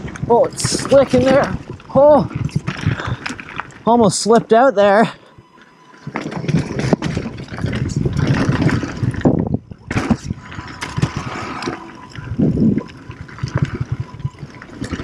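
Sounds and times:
wind rushing over microphone: 0.0 - 3.8, 6.1 - 15.0
bike frame and chain rattling: 0.0 - 15.0
bike tyres skidding on dirt: 5.7 - 15.0.

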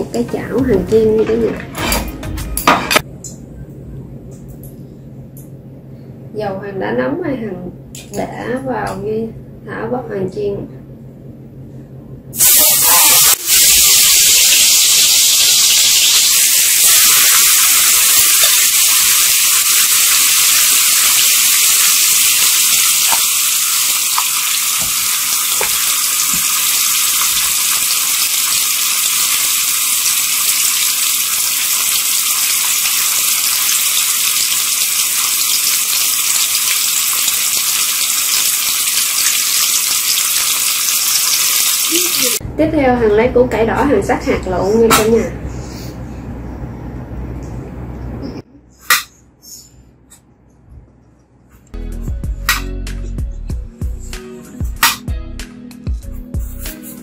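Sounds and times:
chicken wings sizzling in oil: 12.4 - 42.4.

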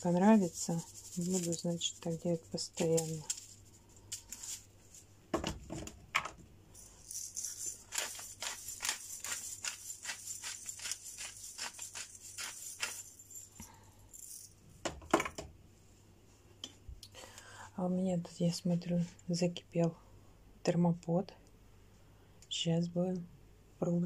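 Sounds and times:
pepper mill grinding: 0.0 - 4.7, 6.8 - 13.6
salt shaker shaking: 0.0 - 5.0, 6.8 - 14.5.

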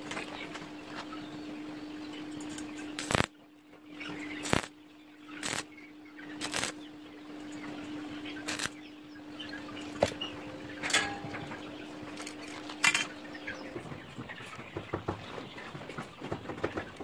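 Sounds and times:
steady hum: 0.0 - 15.1
welding arc crackling: 3.0 - 3.3, 4.4 - 4.8, 5.4 - 5.7, 6.4 - 6.8, 8.4 - 8.8.

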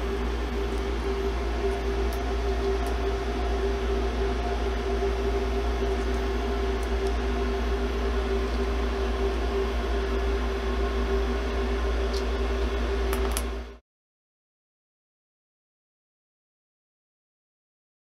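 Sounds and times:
milling machine humming: 0.0 - 13.8.

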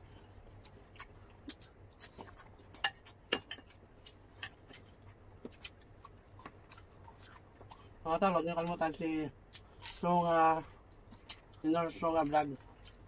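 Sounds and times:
cutlery clinking against dishes: 2.8 - 3.7.

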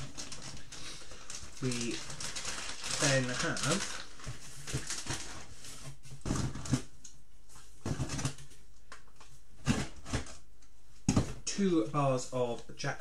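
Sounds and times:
rustling of plastic packs: 0.0 - 6.9.

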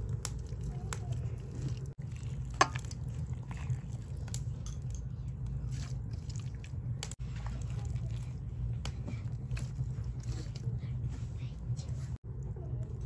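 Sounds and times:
wet squishes of meat: 0.0 - 10.4
steady low hum: 0.0 - 13.0.

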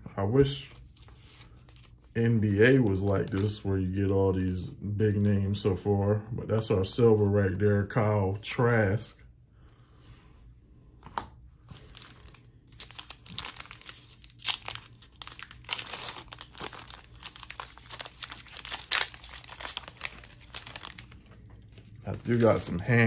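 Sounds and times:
foil wrapper tearing and crinkling: 0.4 - 3.7, 11.7 - 23.0.

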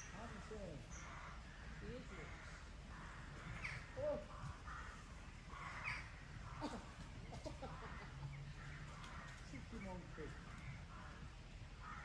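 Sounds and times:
crows cawing: 0.0 - 12.0.

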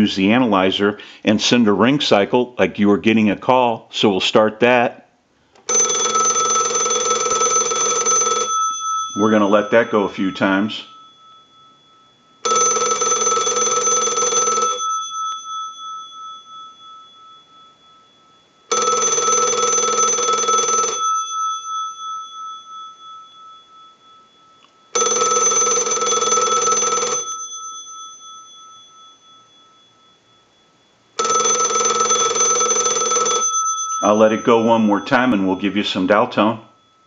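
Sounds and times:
telephone bell ringing: 5.6 - 37.0.

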